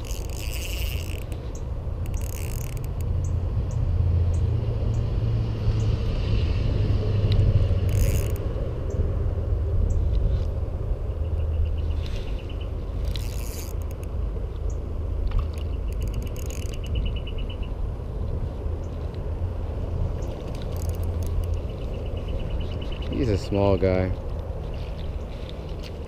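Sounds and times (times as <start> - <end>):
fishing reel gears whirring: 0.0 - 3.4, 7.0 - 9.0, 11.8 - 17.8, 20.1 - 23.5
reel ticking: 0.0 - 3.4, 7.9 - 8.5, 12.0 - 17.7, 20.1 - 23.6
steady low rumble: 0.0 - 26.0.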